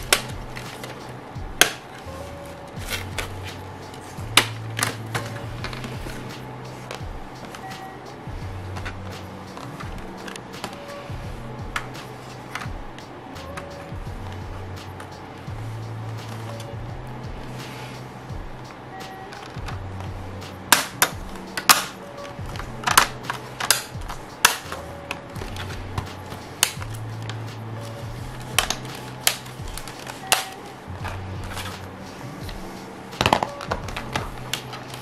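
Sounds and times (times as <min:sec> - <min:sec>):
quiet background music: 0:00.0 - 0:35.0
plastic case clicks and snaps: 0:20.7 - 0:26.9, 0:33.2 - 0:35.0.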